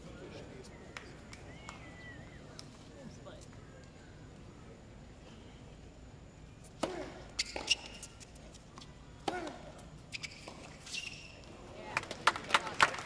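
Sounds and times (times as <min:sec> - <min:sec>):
tennis ball hit with rackets: 0:06.8 - 0:07.8, 0:09.2 - 0:09.7
tennis ball bouncing: 0:06.8 - 0:08.0.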